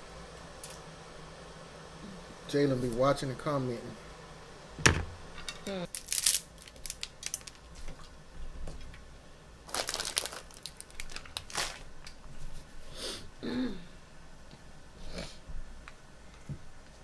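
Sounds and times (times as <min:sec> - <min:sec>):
food crackling and crunching: 0:05.4 - 0:08.2, 0:09.6 - 0:12.3.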